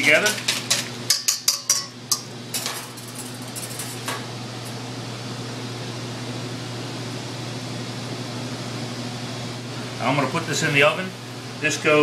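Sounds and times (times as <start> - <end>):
whisk clinking against metal bowl: 0.0 - 2.7
kitchen ventilation hum: 0.0 - 12.0.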